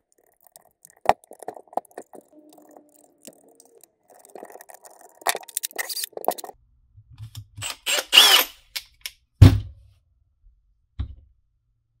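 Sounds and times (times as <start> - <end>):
plastic parts clicking and rattling: 4.2 - 6.6.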